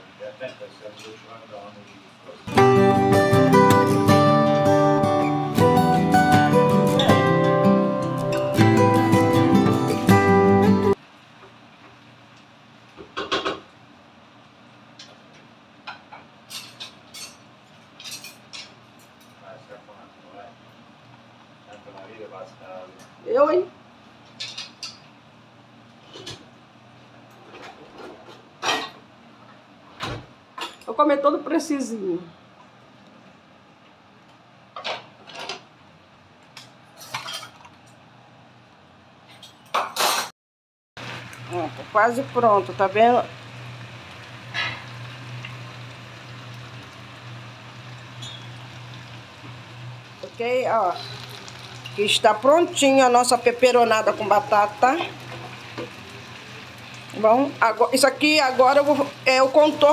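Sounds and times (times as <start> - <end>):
dishes and cutlery clinking: 37.0 - 37.7.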